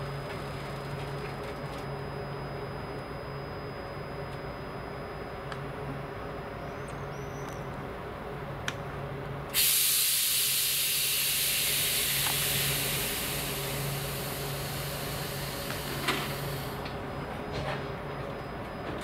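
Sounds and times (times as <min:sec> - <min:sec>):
low train hum: 0:00.0 - 0:19.0
air brakes hissing: 0:09.5 - 0:16.8.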